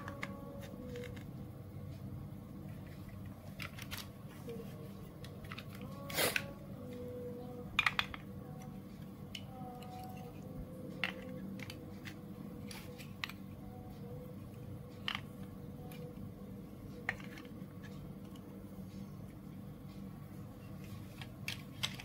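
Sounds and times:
plastic bricks clicking: 0.0 - 1.4, 2.8 - 4.3, 5.1 - 7.0, 7.6 - 13.6, 14.9 - 16.2, 17.0 - 18.5, 20.9 - 22.0
faint hum: 0.0 - 22.0.

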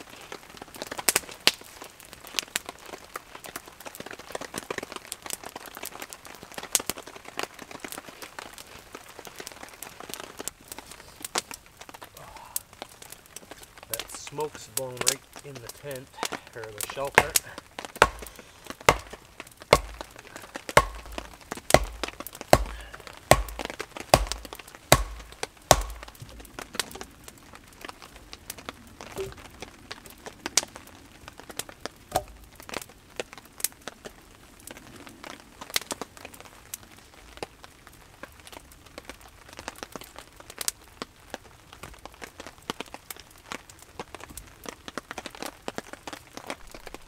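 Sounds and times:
campfire crackling: 0.0 - 47.0
light knocks and clicks of logs: 15.0 - 27.2, 32.1 - 32.8
wooden stake pounded with log: 16.9 - 26.9, 32.1 - 32.4.

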